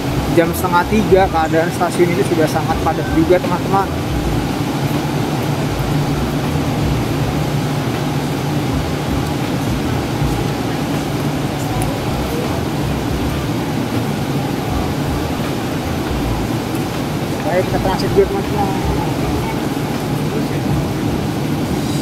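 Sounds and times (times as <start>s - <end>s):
electric train humming: 0.0s - 22.0s.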